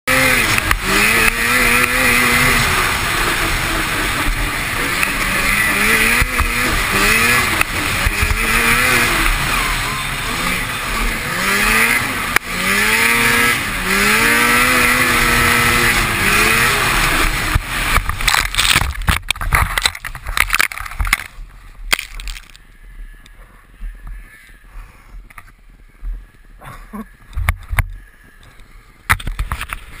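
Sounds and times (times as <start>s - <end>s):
snowmobile engine revving: 0.0s - 19.0s
wind and track noise: 0.1s - 30.0s.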